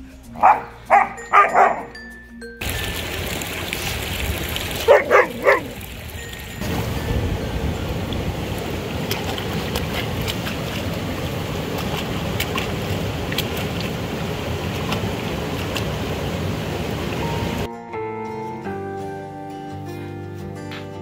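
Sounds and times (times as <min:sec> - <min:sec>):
puppy pawing splashes: 0:02.6 - 0:06.8, 0:07.7 - 0:17.7
stream running over rocks: 0:02.6 - 0:17.7.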